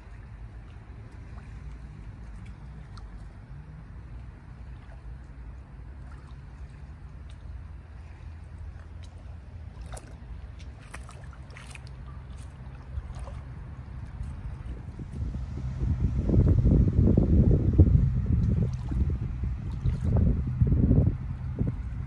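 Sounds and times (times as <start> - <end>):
light splashes in water: 0.0 - 15.1, 18.3 - 20.3
water lapping: 0.0 - 16.8, 17.4 - 22.0
wind rumble on microphone: 0.0 - 22.0.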